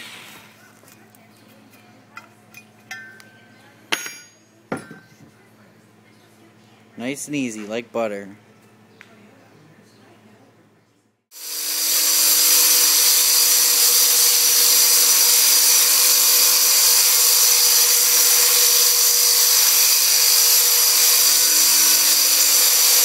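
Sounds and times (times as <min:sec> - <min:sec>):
circular saw cutting tile: 0:11.3 - 0:23.0.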